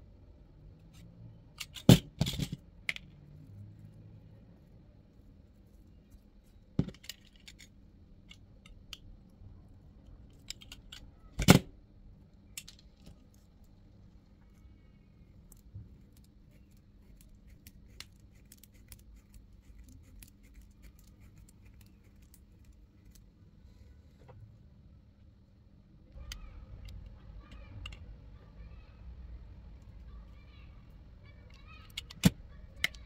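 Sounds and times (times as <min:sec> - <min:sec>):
small tools clicking and tapping: 0:10.3 - 0:11.1, 0:31.5 - 0:33.0.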